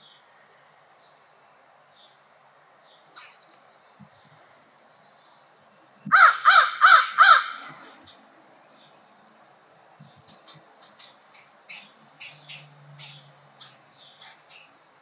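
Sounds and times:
crow cawing: 0:06.1 - 0:08.0.

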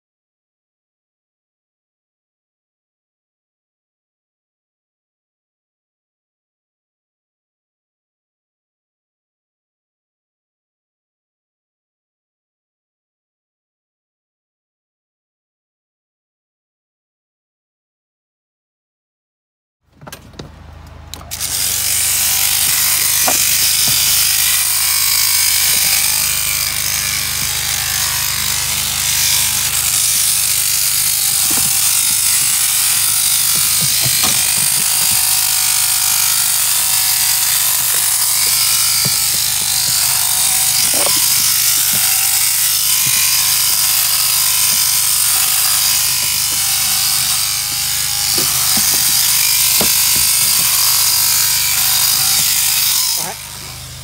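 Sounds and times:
shearing handpiece buzzing: 0:21.1 - 0:54.0.

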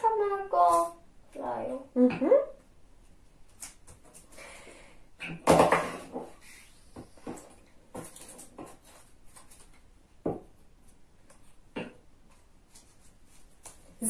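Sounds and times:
paper rustling: 0:06.4 - 0:09.9.

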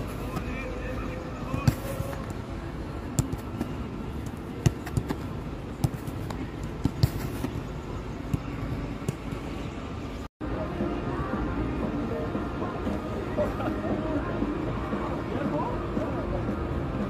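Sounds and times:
footballs being kicked: 0:03.1 - 0:07.7.

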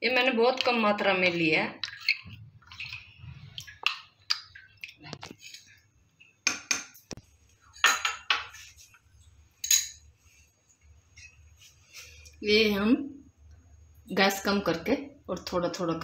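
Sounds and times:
metal spoon clinking glass bowl: 0:09.6 - 0:10.0.

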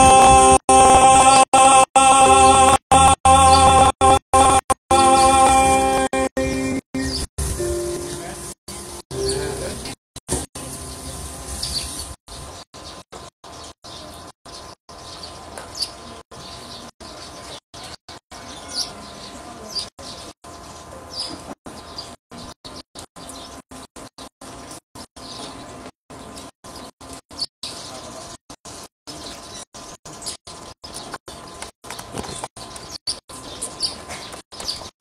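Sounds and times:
birds chirping: 0:07.0 - 0:10.0, 0:10.8 - 0:35.0.

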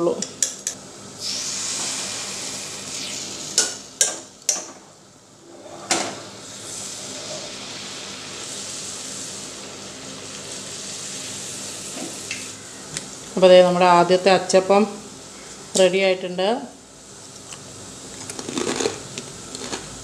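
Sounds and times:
oil sizzling deep-frying: 0:06.4 - 0:12.6.

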